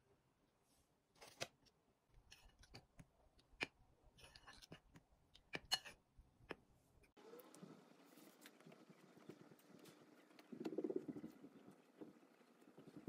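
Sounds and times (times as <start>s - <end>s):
spoon scraping through flour: 2.3s - 2.8s, 4.2s - 4.8s.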